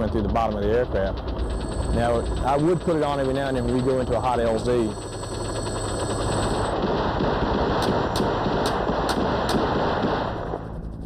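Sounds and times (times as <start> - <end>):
helicopter drone: 0.0 - 11.0
automatic weapons fire: 6.7 - 10.6.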